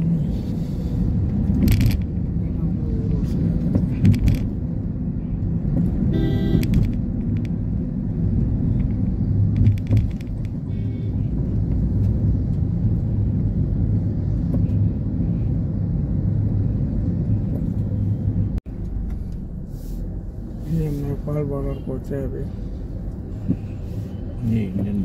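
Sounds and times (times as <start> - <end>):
vehicle horn honking: 6.1 - 6.7.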